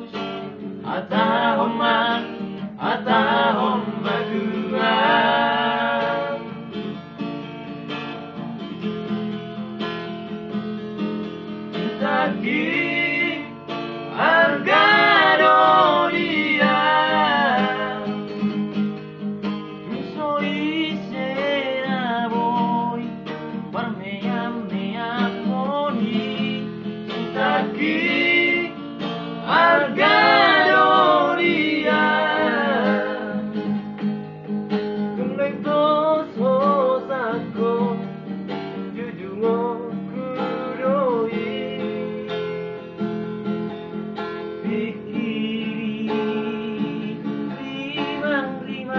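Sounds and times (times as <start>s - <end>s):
man singing: 0.0s - 6.5s, 11.8s - 18.2s, 19.9s - 23.1s, 23.7s - 28.8s, 29.4s - 33.6s, 35.2s - 38.1s, 38.9s - 42.3s, 44.6s - 48.9s
acoustic guitar strumming: 0.0s - 48.9s.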